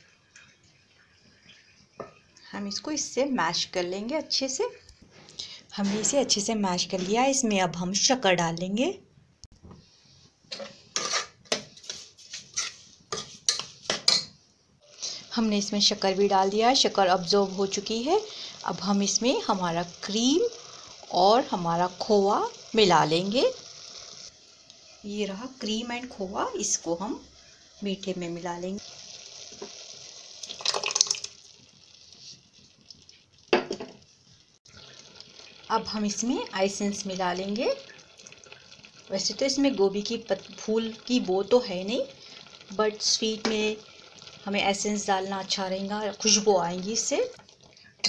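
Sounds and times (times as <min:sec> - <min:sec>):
spoon scraping a cooking pot: 0:10.5 - 0:14.4.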